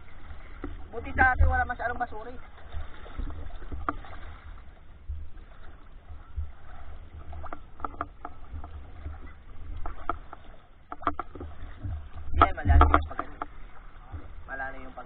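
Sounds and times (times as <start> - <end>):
water sloshing around camera: 0.0 - 15.0.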